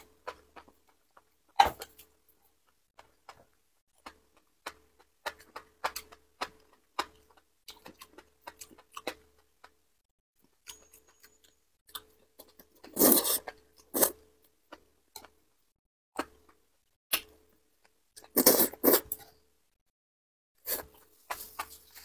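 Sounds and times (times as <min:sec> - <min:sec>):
wet chewing: 0:00.0 - 0:09.8
slurp: 0:12.9 - 0:14.2, 0:18.3 - 0:19.2.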